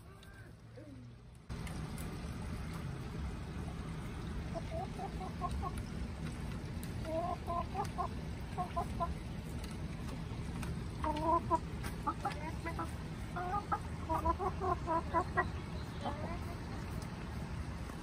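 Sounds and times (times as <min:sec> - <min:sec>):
hens clucking: 0:03.8 - 0:17.8.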